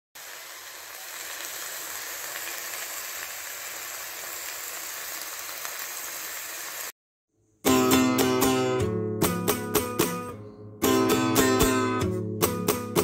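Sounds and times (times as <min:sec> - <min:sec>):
food sizzling in a hot pan: 0:00.2 - 0:07.0.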